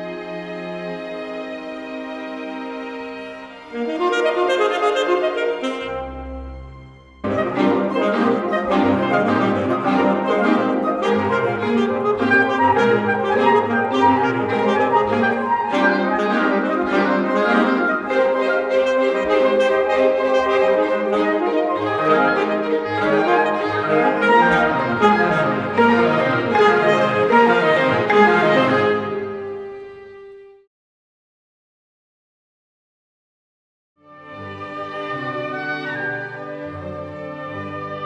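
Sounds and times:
symphony orchestra: 0.0 - 30.7, 34.0 - 38.0
saxophone solo: 3.7 - 30.5.

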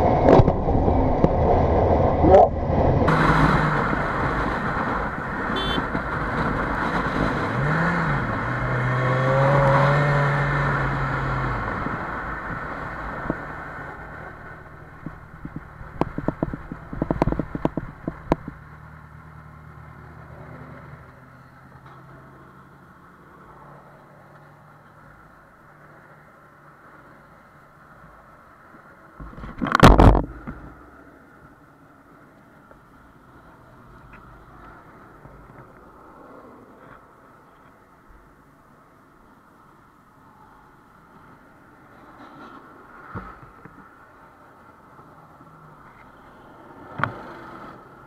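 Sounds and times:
wind rush: 0.0 - 8.4
motorcycle engine: 3.1 - 12.1.

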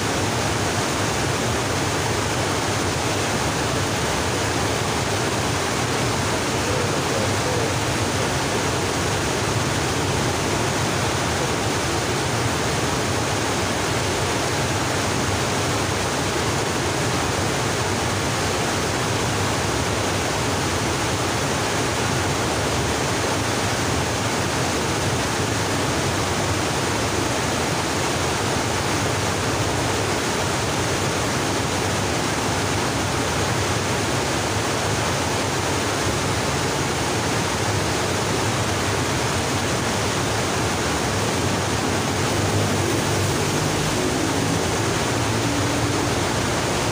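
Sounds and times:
fast-flowing river water: 0.0 - 46.9.

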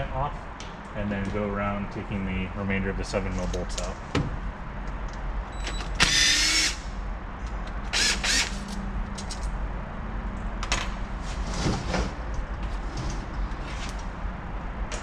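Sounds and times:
cordless drill spinning: 6.0 - 6.8, 7.9 - 8.6.

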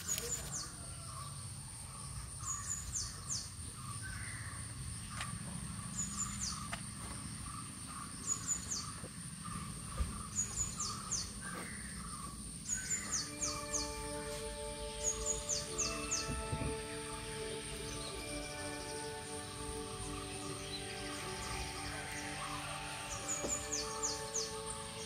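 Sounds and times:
lower bird calls: 0.0 - 25.0
thin high-pitched whine: 12.7 - 25.0.

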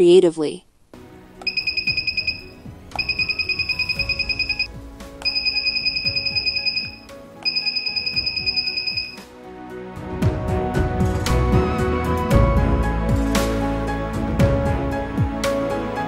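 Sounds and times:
background music: 0.8 - 16.0
buzzer beeping in fast stutters: 1.5 - 9.2.

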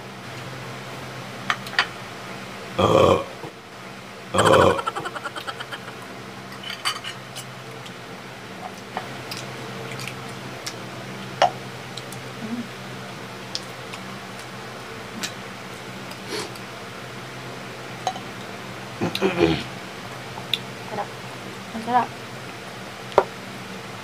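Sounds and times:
steady low hum: 0.0 - 24.0
cutlery scraping ceramic plates: 6.6 - 7.2
wet eating sounds: 9.2 - 10.8.

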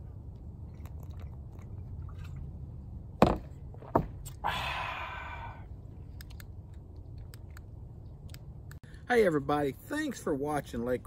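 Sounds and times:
breathy exhale: 4.4 - 5.7.

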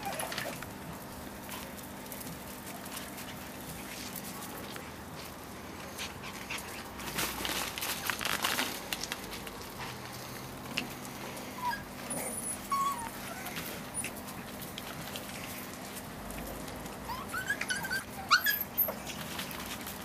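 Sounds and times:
puppy squeaks: 0.0 - 0.6, 11.6 - 14.2, 17.1 - 19.2
puppies scuffling and rustling: 0.0 - 20.0.

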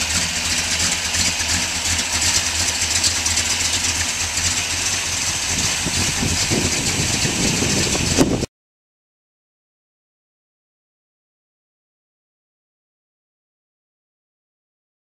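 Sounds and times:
car engine idling: 0.0 - 8.5.

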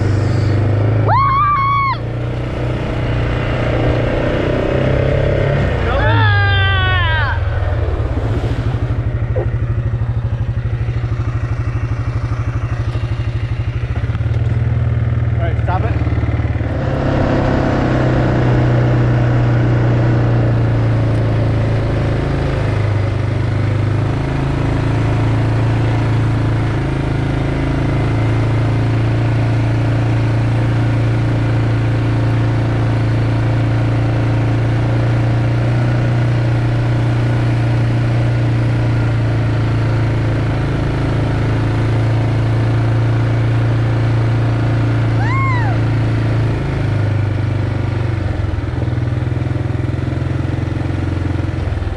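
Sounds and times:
atv engine running: 0.0 - 51.9.

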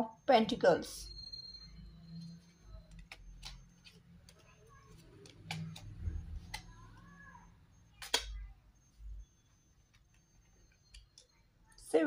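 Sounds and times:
wavering high-pitched tone: 0.9 - 3.9
cards clicking on table: 5.1 - 6.7.

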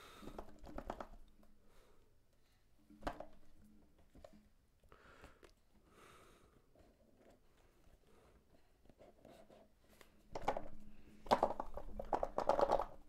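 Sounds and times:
small box clicks and taps: 0.2 - 1.3, 10.3 - 13.0.

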